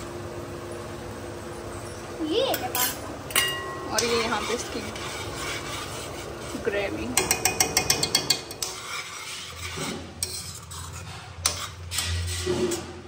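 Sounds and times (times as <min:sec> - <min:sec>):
metal spoon scraping steel pan: 0:02.7 - 0:13.0.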